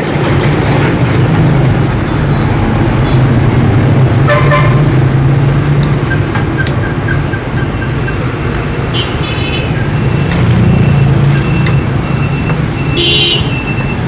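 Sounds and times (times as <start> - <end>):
knife scraping sugarcane rind: 0.0 - 4.3
vehicle horn toot: 12.8 - 13.7.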